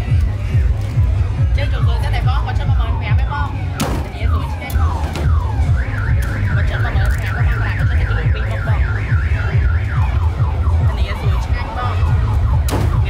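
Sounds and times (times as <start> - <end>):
steady low rumble: 0.0 - 13.0
electronic alarm siren: 3.6 - 13.0.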